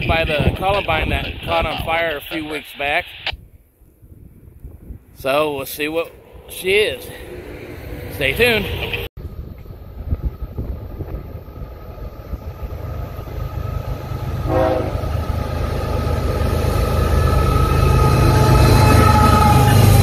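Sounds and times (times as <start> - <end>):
diesel locomotive rumble: 0.0 - 2.4, 4.1 - 20.0
train horn: 14.3 - 15.4, 18.0 - 20.0.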